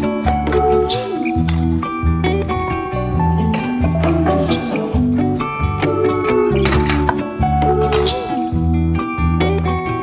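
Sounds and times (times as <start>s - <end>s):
instrumental pop music: 0.0s - 10.0s.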